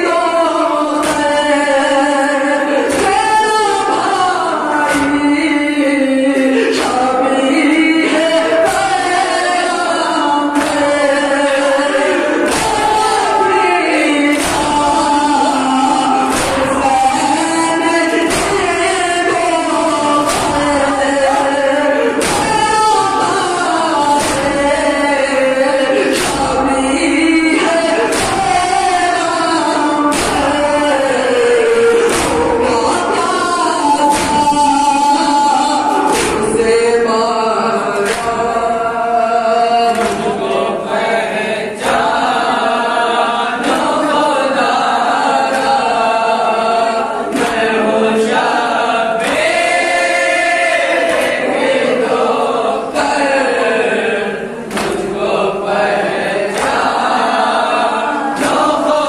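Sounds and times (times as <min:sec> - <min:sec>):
men chanting a lament: 0:00.0 - 0:59.0
hands beating on chests: 0:12.4 - 0:13.4, 0:14.3 - 0:25.1, 0:26.1 - 0:29.3, 0:30.1 - 0:33.2, 0:33.9 - 0:35.2, 0:35.9 - 0:36.7, 0:39.9 - 0:40.4, 0:54.7 - 0:55.2.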